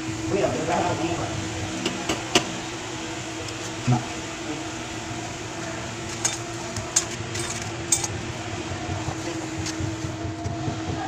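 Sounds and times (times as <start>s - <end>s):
steady machine hum: 0.0s - 11.0s
metal tools clinking: 6.1s - 8.2s.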